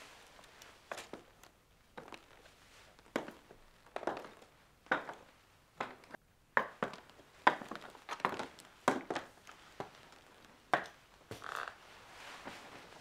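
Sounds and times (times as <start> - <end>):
footsteps on hard floor: 2.0 - 10.1.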